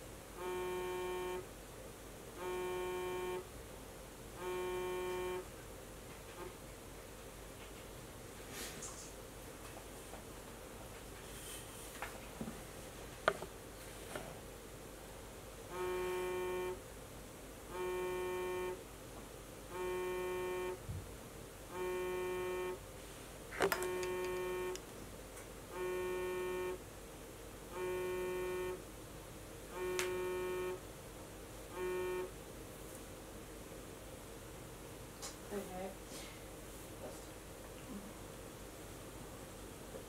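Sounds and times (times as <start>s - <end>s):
phone ringing buzzing tone: 0.4s - 1.5s, 2.4s - 3.5s, 4.4s - 5.5s, 15.7s - 16.8s, 17.7s - 18.8s, 19.7s - 20.8s, 21.7s - 22.8s, 23.6s - 24.8s, 25.7s - 26.8s, 27.7s - 28.8s, 29.7s - 30.8s, 31.7s - 32.4s.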